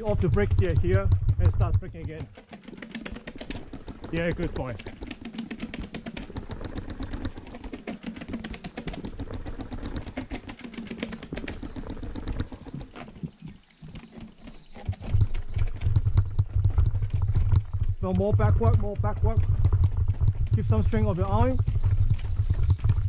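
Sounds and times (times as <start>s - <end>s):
bike rattling down stone steps: 0.0s - 23.0s
low rumble: 15.5s - 23.0s.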